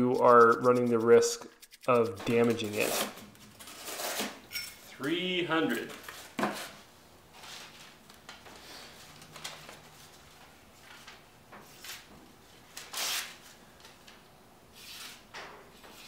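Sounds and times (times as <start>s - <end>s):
knife slicing paper: 0.1s - 4.4s, 12.9s - 13.3s.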